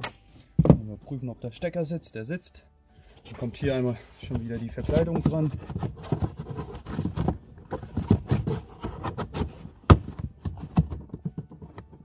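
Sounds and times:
felt rustling and soft knocks: 3.0s - 12.0s.

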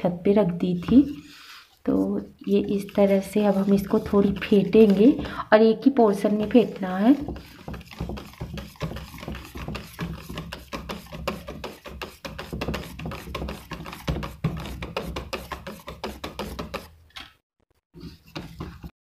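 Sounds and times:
whisk beating batter in pot: 2.4s - 5.3s, 6.1s - 16.9s, 18.0s - 18.9s.

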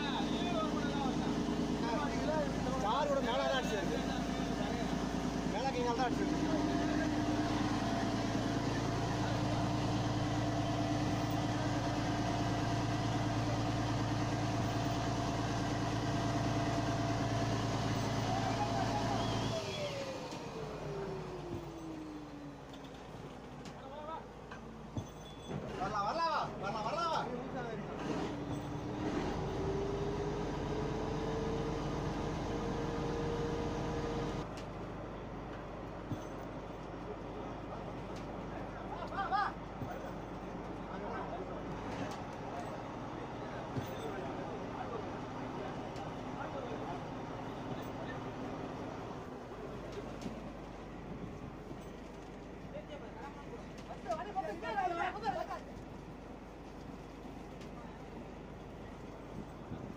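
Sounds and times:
boat engine droning: 0.0s - 25.2s, 28.1s - 34.9s.

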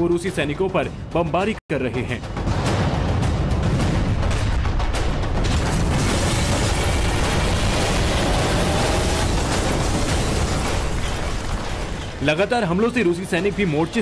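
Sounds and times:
rumbling roar of explosions: 2.5s - 12.2s.

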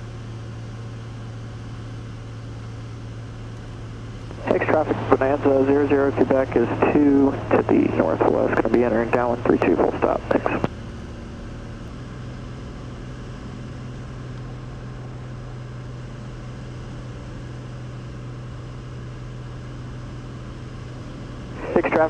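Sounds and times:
propeller plane engine drone: 0.0s - 22.0s
air noise: 4.2s - 10.7s, 21.5s - 22.0s.

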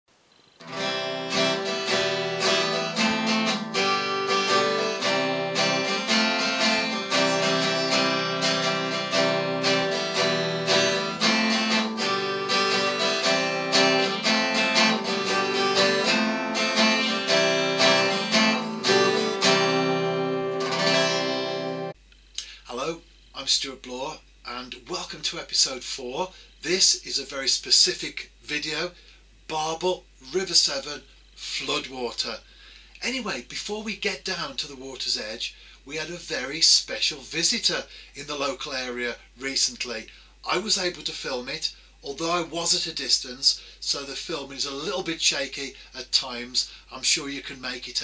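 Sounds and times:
acoustic guitar strumming: 0.6s - 22.0s.

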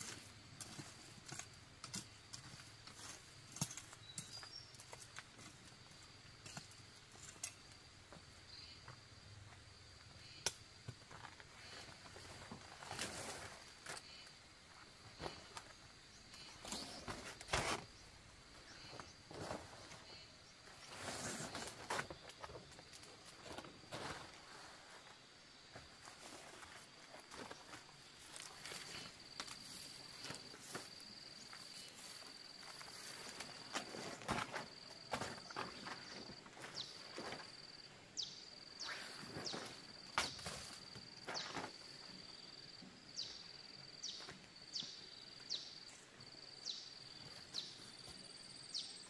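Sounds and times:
faint high insect drone: 0.0s - 49.0s
leaves rustling and swishing: 12.2s - 13.8s, 20.8s - 22.1s.

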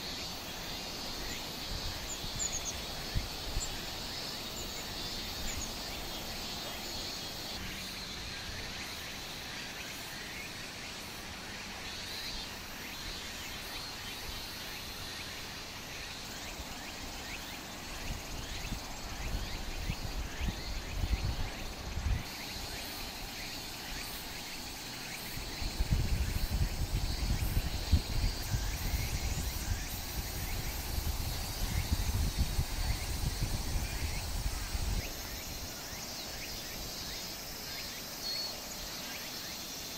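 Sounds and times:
insects chirping: 0.0s - 39.9s
steady hiss: 0.0s - 39.9s
wind buffeting microphone: 17.9s - 22.3s, 25.4s - 35.7s.

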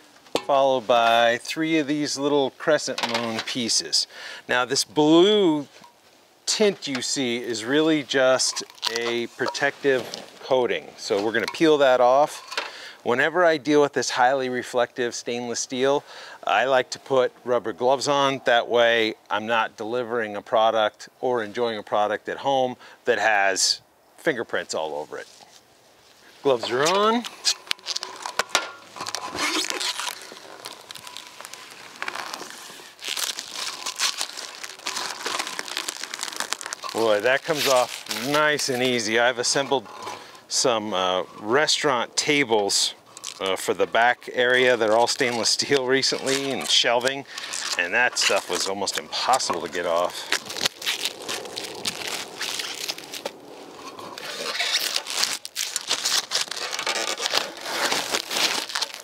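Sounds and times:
plastic film peeling and crinkling: 5.2s - 10.5s, 26.4s - 59.0s.

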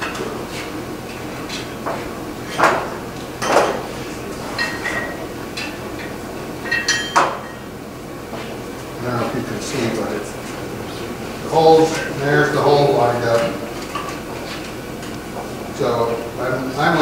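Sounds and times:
hammer clinking on anvil: 6.7s - 7.6s.

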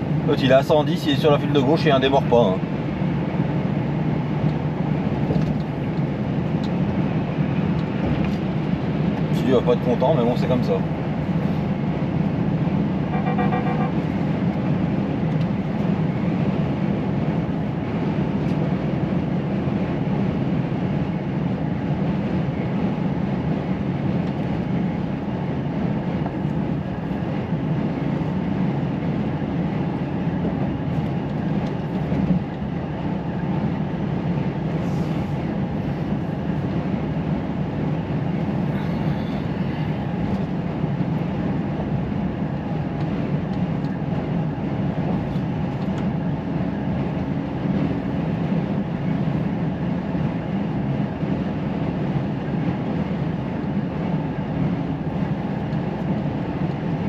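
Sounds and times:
road noise: 0.0s - 57.0s
truck engine drone: 0.0s - 57.0s
pulsing tone: 13.1s - 14.1s.

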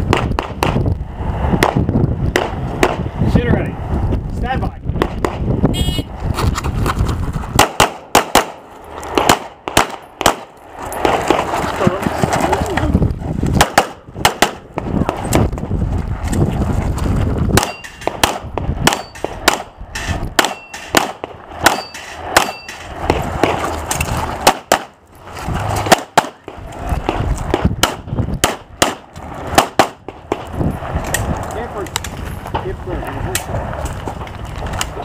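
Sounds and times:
pistol firing sharp shots: 7.6s - 11.5s, 13.6s - 15.2s, 17.6s - 23.6s, 24.4s - 25.0s, 25.8s - 30.5s.

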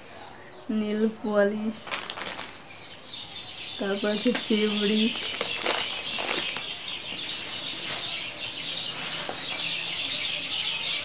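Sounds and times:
birds chirping: 0.0s - 11.0s
plastic bag rustling: 1.8s - 3.0s, 4.2s - 9.6s.

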